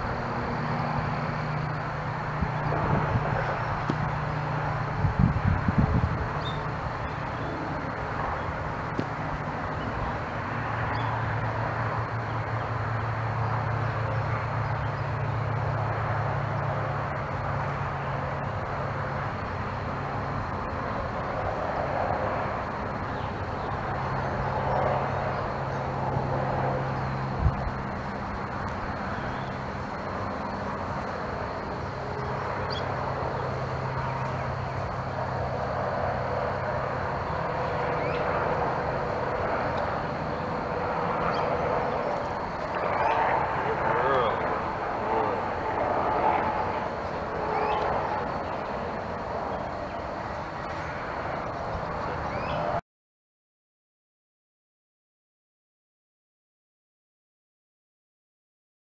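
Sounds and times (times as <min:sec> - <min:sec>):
steady rushing background: 0:00.0 - 0:52.2
low engine drone: 0:00.0 - 0:52.8.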